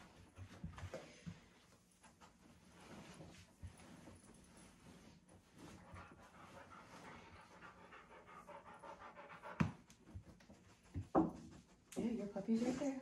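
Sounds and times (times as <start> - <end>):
dog panting: 5.7 - 11.8.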